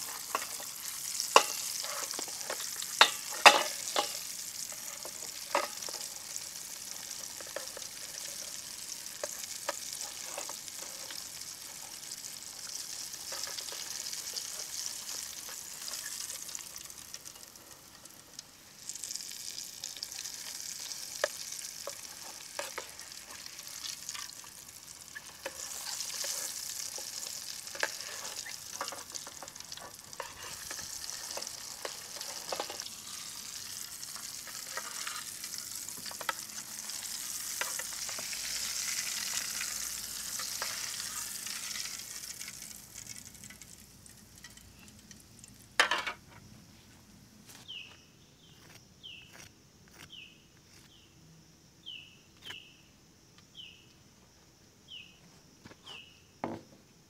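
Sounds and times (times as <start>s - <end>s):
metal tongs scraping pot: 0.0s - 6.1s, 6.9s - 11.9s, 13.2s - 16.4s, 20.8s - 24.4s, 25.2s - 42.0s
deep-frying sizzling hiss: 0.0s - 47.9s.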